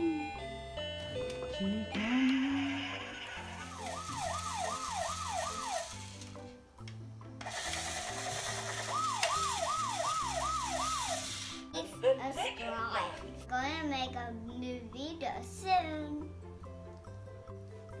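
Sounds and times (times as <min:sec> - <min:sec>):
toy electronic siren whoops: 0:02.0 - 0:06.1, 0:08.4 - 0:11.5.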